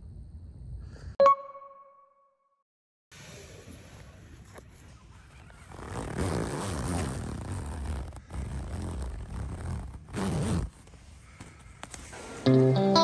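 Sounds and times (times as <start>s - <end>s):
tent zipper pulled open: 5.0s - 10.9s.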